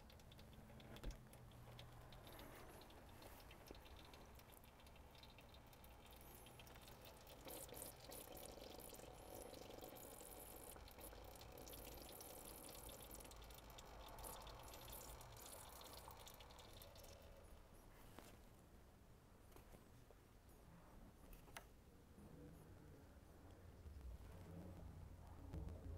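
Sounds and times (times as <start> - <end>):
oil dripping into pan: 0.0 - 17.8.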